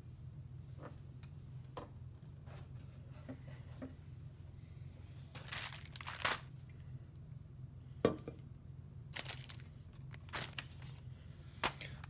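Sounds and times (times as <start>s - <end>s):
steady low hum: 0.0s - 12.0s
material rustling and crinkling: 5.4s - 6.5s, 9.1s - 11.1s.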